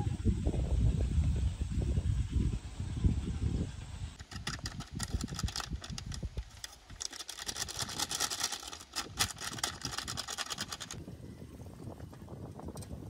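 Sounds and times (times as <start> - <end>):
paper sachet crinkling: 4.2 - 11.0.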